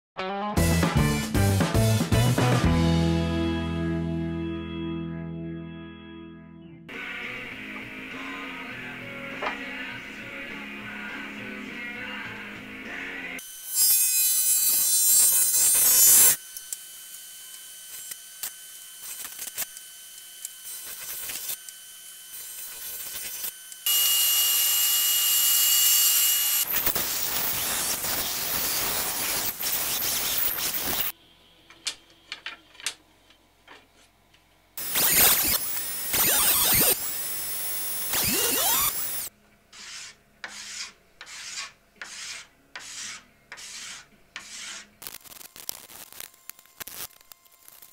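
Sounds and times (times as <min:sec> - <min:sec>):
band saw cutting: 0:13.4 - 0:31.1, 0:34.8 - 0:44.9
jointer cutting a board: 0:13.7 - 0:31.1, 0:34.8 - 0:39.3
hand plane strokes on a board: 0:39.8 - 0:44.9.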